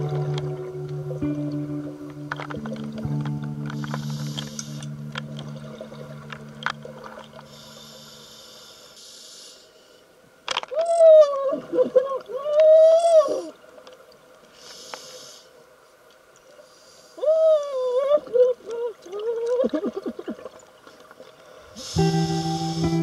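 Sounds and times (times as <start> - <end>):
plucked guitar music: 0.0 - 7.5, 21.9 - 23.0
scuba regulator breaths hissing: 3.8 - 4.9, 7.5 - 10.0, 14.6 - 15.6, 21.6 - 23.0.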